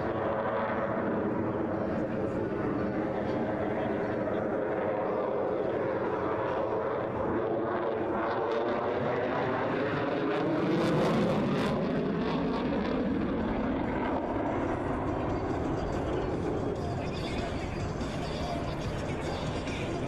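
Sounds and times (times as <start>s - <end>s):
jet engines passing overhead: 0.0s - 20.0s.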